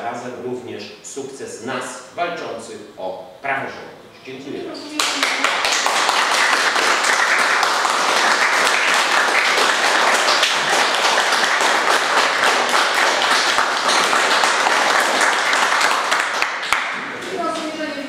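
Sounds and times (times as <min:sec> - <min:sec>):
crowd applauding: 0:05.0 - 0:17.6.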